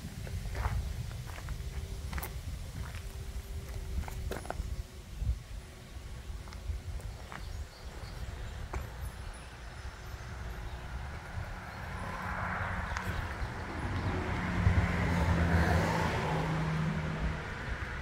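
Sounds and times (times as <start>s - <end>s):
vehicle passing by: 9.5s - 18.0s.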